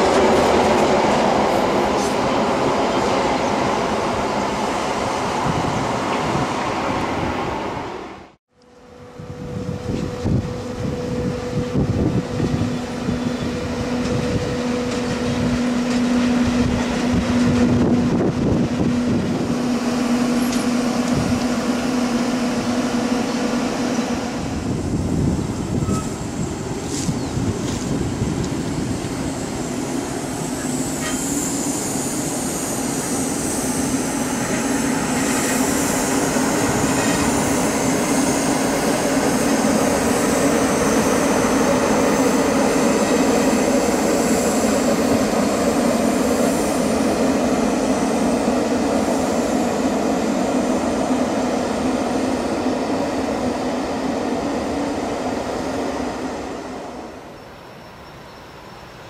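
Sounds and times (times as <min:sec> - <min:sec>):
train wheels rumbling on rails: 0:00.0 - 0:59.0
high wheel squeal: 0:25.7 - 0:27.4, 0:30.3 - 0:38.5.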